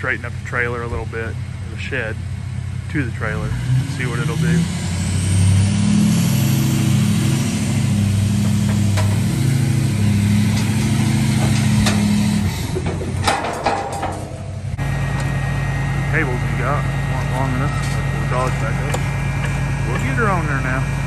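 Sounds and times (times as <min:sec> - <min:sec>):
truck engine running under load: 0:00.0 - 0:21.0
knocks and clanks: 0:07.7 - 0:15.3.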